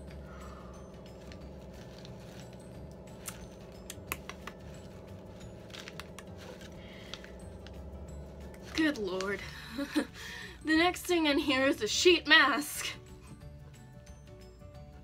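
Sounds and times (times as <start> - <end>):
low hum: 0.0 - 11.2
packet and tissue paper crinkling: 1.2 - 7.8.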